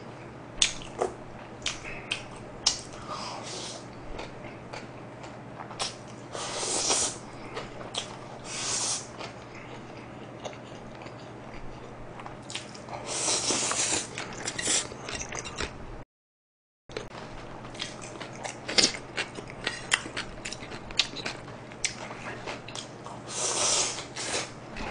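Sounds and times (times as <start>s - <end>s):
low steady hum: 0.0s - 16.0s, 16.9s - 24.9s
wet chewing: 7.0s - 8.2s.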